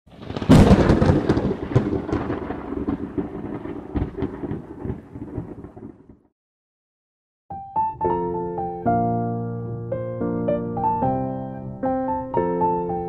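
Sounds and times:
thunder crack and rumble: 0.1 - 6.3.

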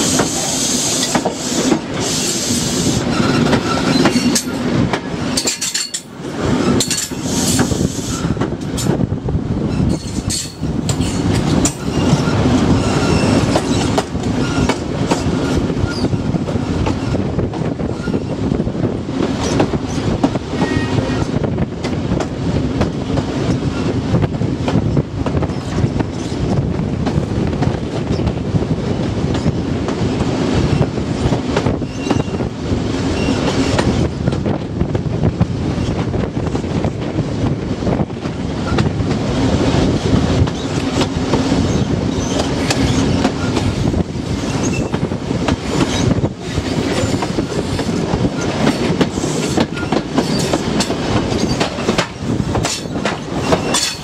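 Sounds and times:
train wheels rumbling on rails: 0.0 - 54.0
wind rush: 0.0 - 54.0
wheel clicks on rail joints: 3.2 - 7.7, 44.4 - 54.0.

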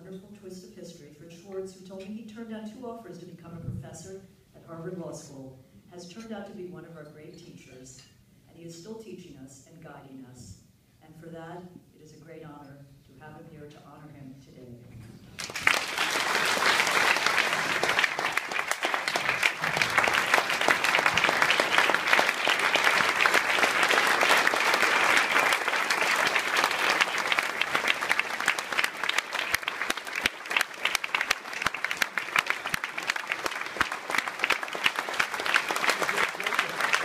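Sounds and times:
audience applauding: 15.4 - 37.0.

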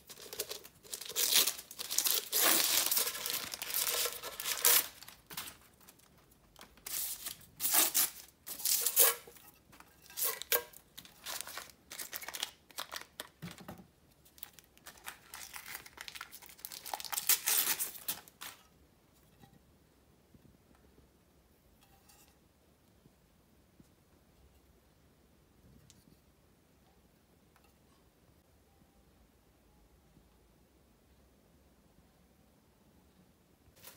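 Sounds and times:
paper crinkling and tearing: 0.0 - 9.3, 10.2 - 13.4, 14.4 - 18.6.

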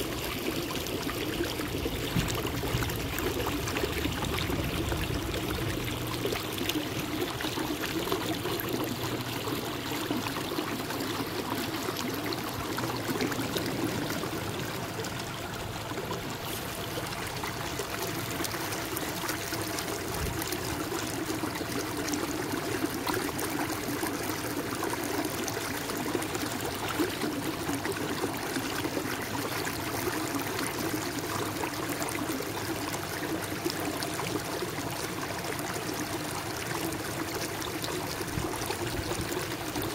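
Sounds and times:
water running off paddle: 0.0 - 22.5.

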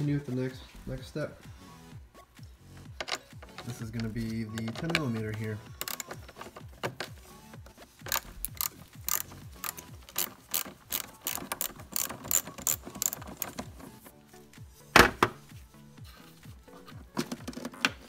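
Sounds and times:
socket ratchet clicking: 4.6 - 7.0, 8.0 - 14.0.

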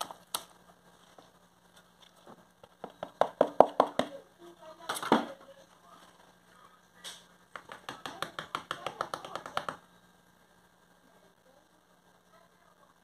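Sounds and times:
whisk clicking against plastic bowl: 7.6 - 9.8.

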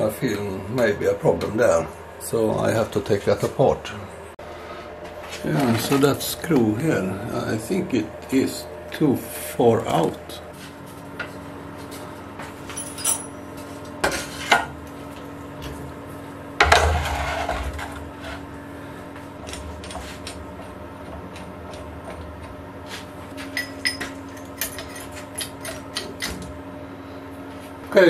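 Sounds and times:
faint steady hum: 0.0 - 28.0
metal tools clinking: 12.7 - 13.4.

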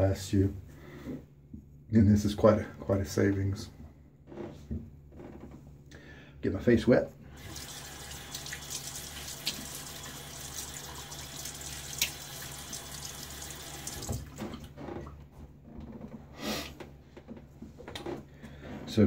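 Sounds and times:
sink tap running: 7.3 - 14.5
water splashing on face: 7.4 - 14.7.

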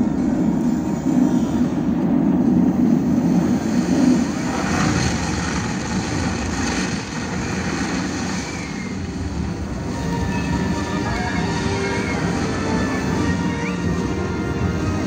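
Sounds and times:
avalanche roar: 0.0 - 15.0
rushing hiss: 3.0 - 13.6.

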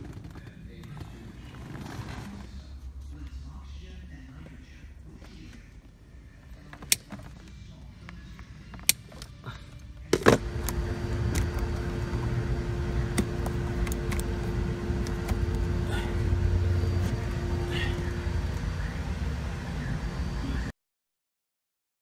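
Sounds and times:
constant hum: 0.0 - 20.7
low rumble: 10.4 - 20.7.

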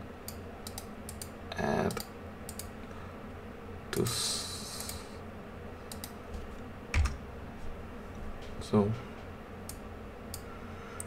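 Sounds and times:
keyboard keys clicking: 7.0 - 7.2.

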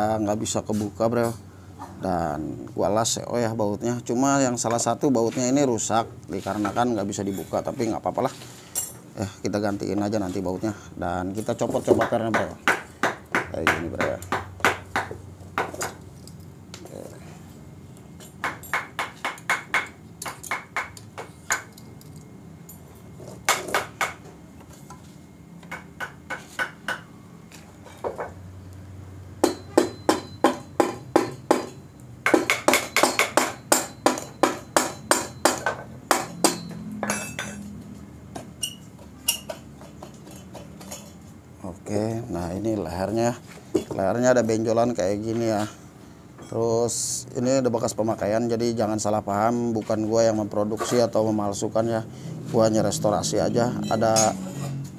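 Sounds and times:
hammer striking metal exhaust: 29.4 - 37.7.

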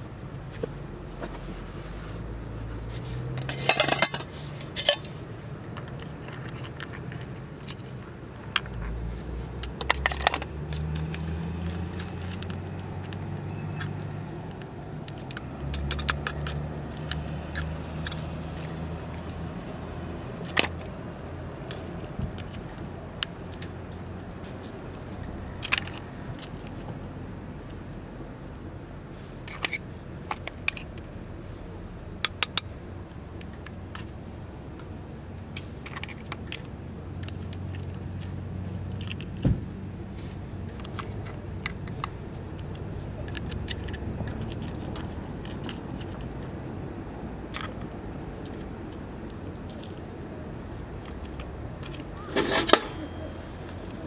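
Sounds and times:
metal cookware clinking: 3.4 - 5.1, 52.2 - 53.5.

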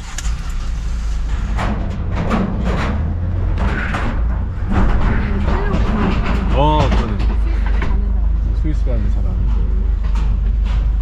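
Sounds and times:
rattles and clunks: 0.0 - 11.0
van engine low rumble: 0.0 - 11.0
tyres rolling over metal plates: 1.2 - 8.5.

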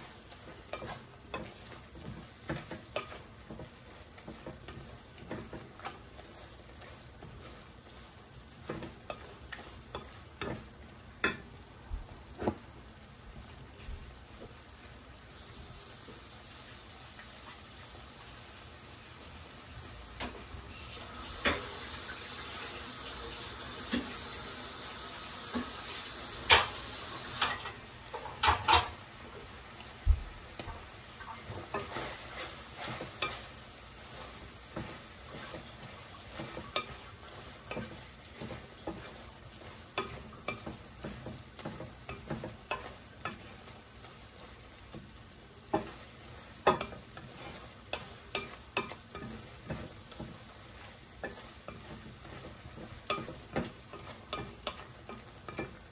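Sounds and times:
wooden spoon knocking on pan: 0.0 - 12.7, 32.8 - 55.9
spoon scraping pan: 0.0 - 16.3, 23.8 - 55.9
frying sizzle: 0.0 - 55.9.

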